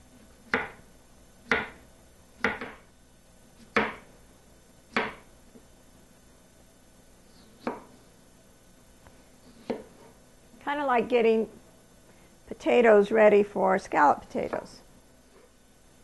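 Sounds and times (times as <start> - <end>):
knife slicing potato: 2.4 - 2.9, 3.5 - 4.1, 7.2 - 8.0, 9.4 - 10.2.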